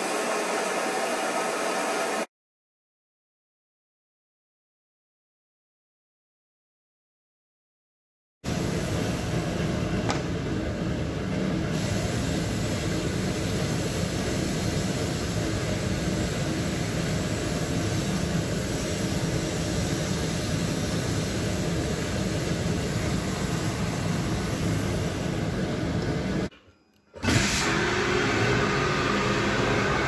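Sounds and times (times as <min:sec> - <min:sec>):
compressed air blasting hiss: 0:11.7 - 0:25.6.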